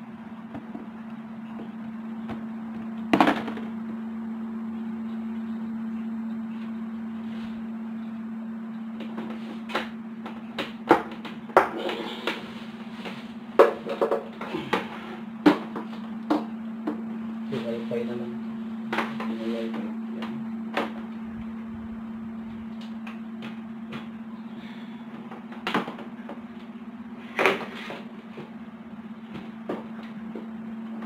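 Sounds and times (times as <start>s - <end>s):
steady low hum: 0.0s - 31.0s
knocks and clatters of tv: 3.1s - 3.8s, 9.0s - 12.4s, 13.6s - 17.1s, 25.2s - 26.5s.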